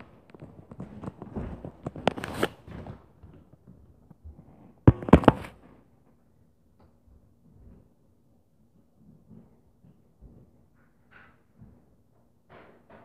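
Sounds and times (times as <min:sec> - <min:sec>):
short knocks and thumps: 0:04.9 - 0:05.6.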